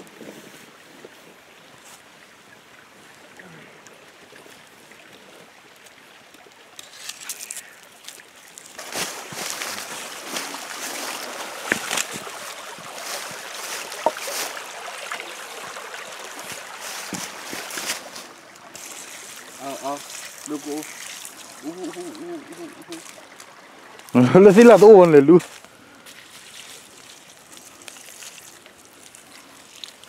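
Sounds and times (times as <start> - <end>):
faint steady hiss: 0.0 - 30.0
footsteps crunching through dry leaves: 6.8 - 22.1, 22.8 - 30.0.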